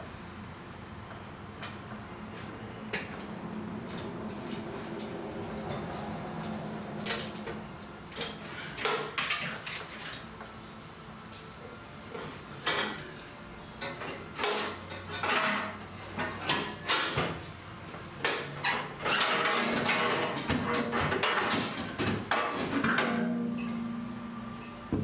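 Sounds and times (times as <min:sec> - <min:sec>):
metal clunks and scrapes: 0:18.2 - 0:23.8.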